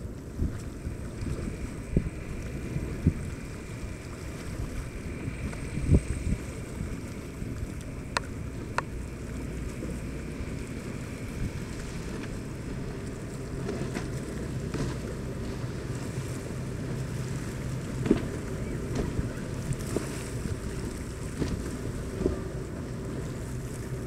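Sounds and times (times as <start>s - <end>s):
motorboat engines running: 0.0s - 24.0s
wind buffeting microphone: 0.0s - 24.0s.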